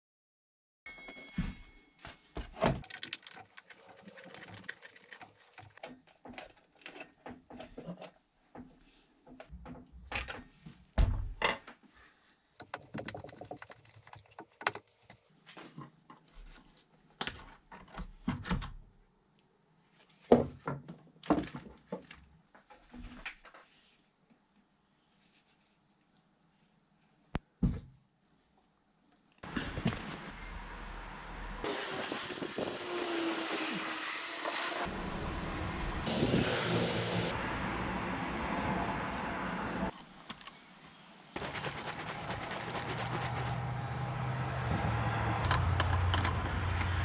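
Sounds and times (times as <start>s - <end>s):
plastic and metal parts knocking: 2.7s - 7.0s, 12.6s - 15.2s
plastic bags rustling: 2.8s - 5.8s.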